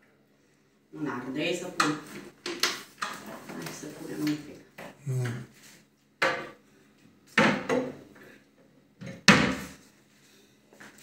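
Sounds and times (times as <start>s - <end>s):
kitchen items knocking and clattering: 7.4s - 8.0s.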